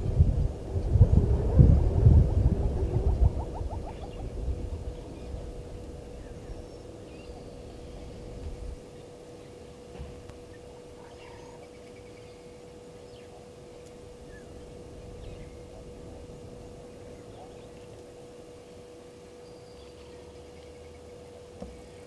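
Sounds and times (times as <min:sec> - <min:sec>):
low background rumble: 0:00.0 - 0:22.0
steady hum: 0:00.0 - 0:22.0
faint bird chirps: 0:06.1 - 0:09.7, 0:10.5 - 0:18.0.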